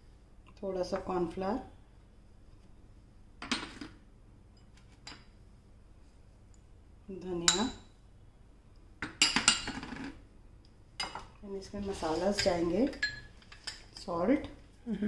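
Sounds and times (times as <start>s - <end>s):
metal spoon clinking against bowls: 7.4s - 7.9s, 9.0s - 9.8s, 12.4s - 14.0s.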